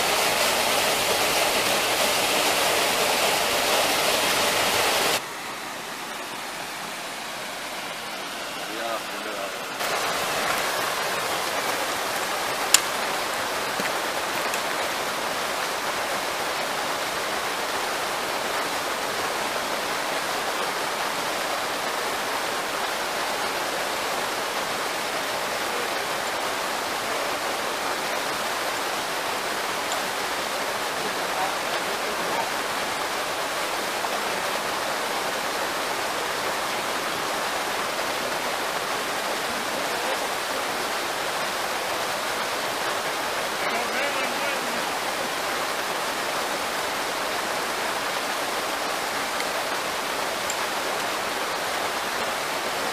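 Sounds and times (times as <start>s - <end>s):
small waterfall rushing: 0.0s - 52.9s.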